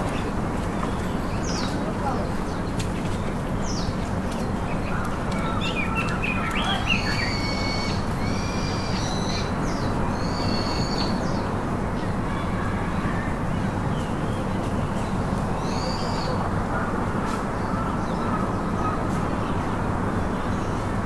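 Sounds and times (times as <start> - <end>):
birds chirping: 0.0 - 16.9
whistled bird notes: 6.3 - 9.5.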